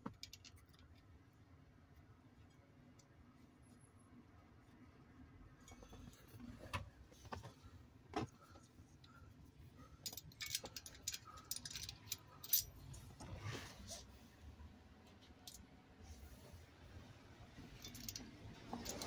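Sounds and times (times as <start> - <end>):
metal clicks and clinks: 10.0 - 12.8, 17.8 - 19.0.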